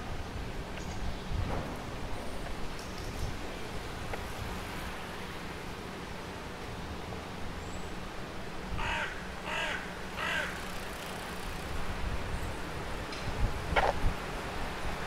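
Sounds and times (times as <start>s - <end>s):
city traffic hum: 0.0s - 15.0s
crow cawing: 8.8s - 10.7s.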